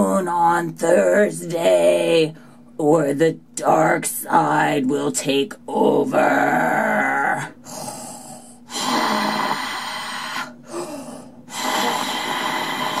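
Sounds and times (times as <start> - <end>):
mechanical respirator breathing: 7.6 - 13.0.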